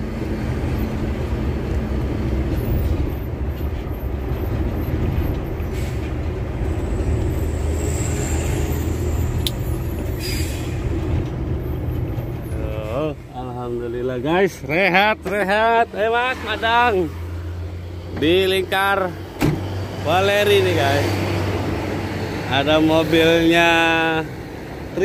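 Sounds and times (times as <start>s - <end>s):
truck diesel engine rumble: 0.0s - 25.0s
short air hisses: 10.2s - 11.0s.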